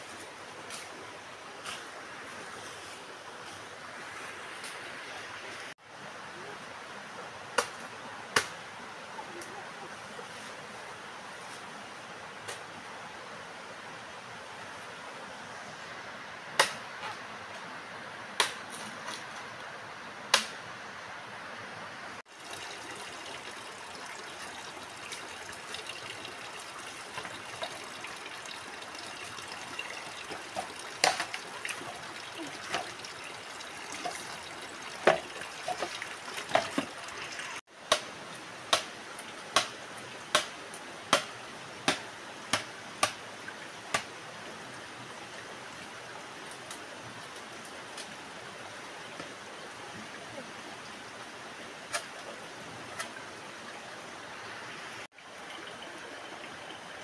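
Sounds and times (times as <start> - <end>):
stream rushing: 0.0 - 57.0
machete chopping bamboo: 16.6 - 16.8, 18.4 - 18.6, 20.3 - 20.6, 37.9 - 38.1, 38.7 - 38.9, 40.3 - 40.5, 41.1 - 43.2.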